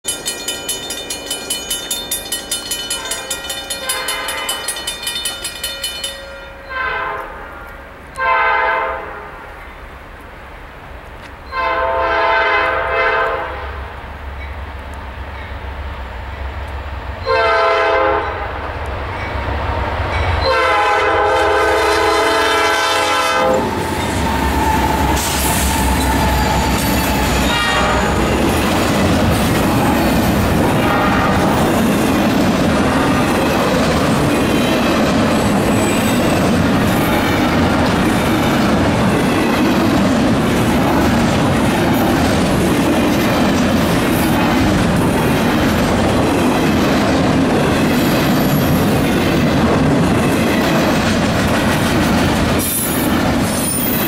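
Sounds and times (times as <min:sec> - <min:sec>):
train cars clattering on rails: 0:00.0 - 0:06.7, 0:20.0 - 0:54.0
crossing bell ringing: 0:00.0 - 0:07.0, 0:23.5 - 0:25.2, 0:25.8 - 0:32.3
locomotive air horn blasts: 0:03.8 - 0:04.6, 0:06.7 - 0:07.4, 0:08.2 - 0:09.3, 0:11.5 - 0:13.8, 0:17.2 - 0:18.5, 0:20.4 - 0:23.8, 0:27.4 - 0:28.4, 0:30.8 - 0:31.6.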